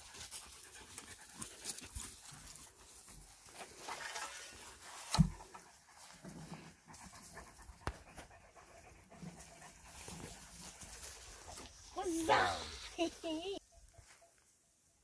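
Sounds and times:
close panting breaths: 0:05.6 - 0:12.0.

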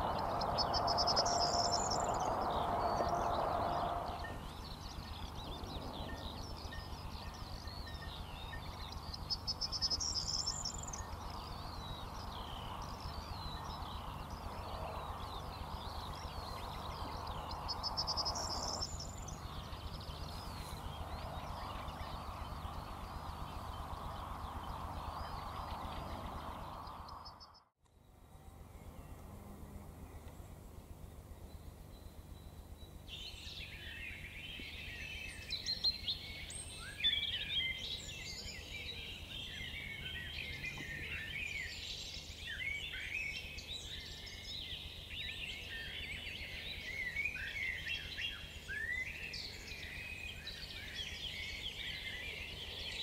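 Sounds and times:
small birds singing: 0:00.0 - 0:53.0.

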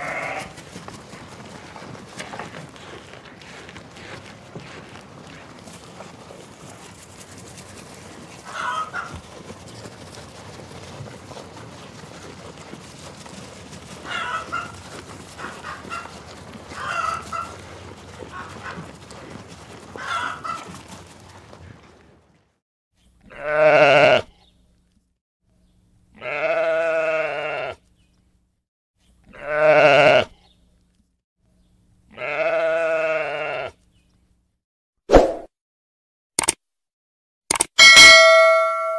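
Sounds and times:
sheep bleating: 0:00.0 - 0:00.6, 0:15.4 - 0:19.4, 0:23.2 - 0:24.3, 0:26.2 - 0:27.8, 0:29.3 - 0:30.4, 0:32.1 - 0:33.8
farmyard background: 0:00.0 - 0:34.6, 0:37.5 - 0:38.9
hen clucks: 0:08.4 - 0:09.4, 0:14.0 - 0:18.9, 0:20.0 - 0:20.7.

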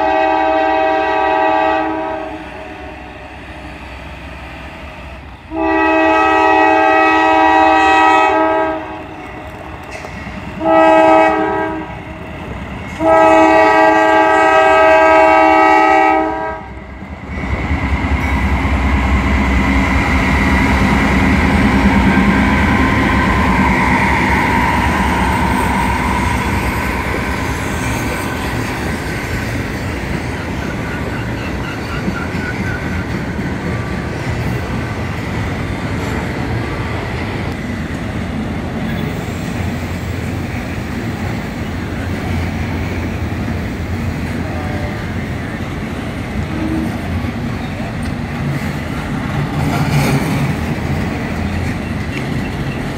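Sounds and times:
locomotive air horn: 0:00.0 - 0:03.2, 0:05.5 - 0:09.1, 0:10.6 - 0:12.0, 0:13.0 - 0:16.8, 0:44.4 - 0:45.1, 0:46.5 - 0:47.1
freight train wheels on rails: 0:00.0 - 0:52.9
locomotives rumbling past: 0:16.7 - 0:52.9.

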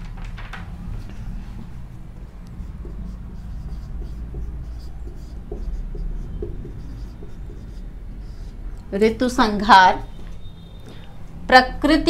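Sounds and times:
marker pen on whiteboard: 0:00.0 - 0:12.0
steady low hum: 0:00.0 - 0:12.0.

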